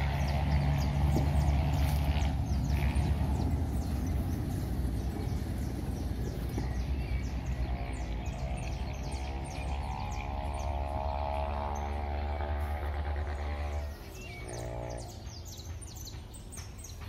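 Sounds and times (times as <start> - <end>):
small birds chirping: 0.0 - 17.0
steady low rumble: 0.0 - 17.0.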